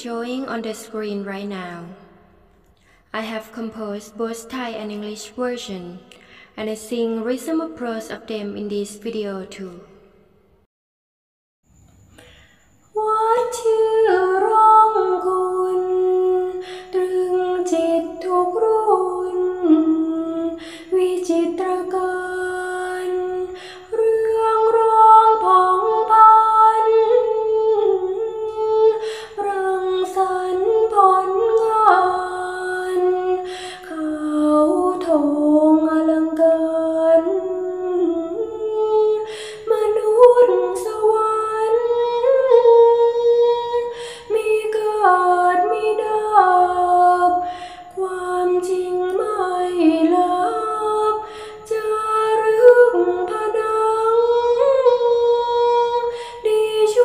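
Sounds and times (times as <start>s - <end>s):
woman chanting a poem: 0.0s - 2.1s, 3.2s - 9.9s.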